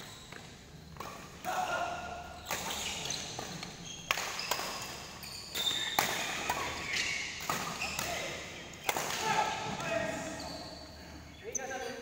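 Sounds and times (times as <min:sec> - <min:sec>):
shoes squeaking on court: 0:00.0 - 0:01.3, 0:02.2 - 0:08.8, 0:09.6 - 0:12.0
racket hitting shuttlecock: 0:02.5 - 0:09.6.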